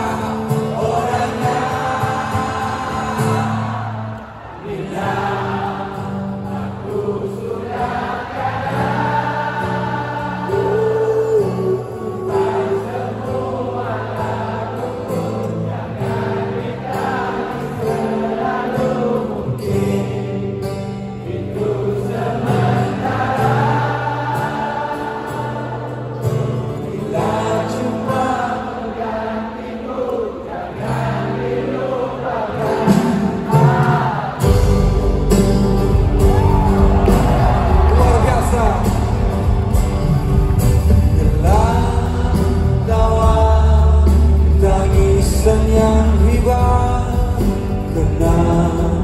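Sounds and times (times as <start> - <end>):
acoustic guitar: 0.0 - 49.0
crowd singing along: 0.0 - 49.0.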